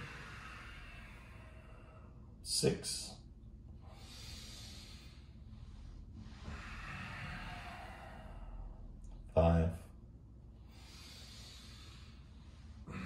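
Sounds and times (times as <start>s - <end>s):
person breathing slowly and deeply: 0.0s - 2.4s, 3.7s - 9.3s, 10.6s - 13.0s.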